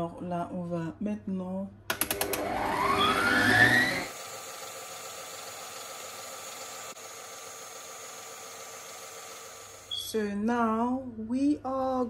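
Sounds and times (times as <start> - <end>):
stand mixer motor whining: 1.9 - 10.0.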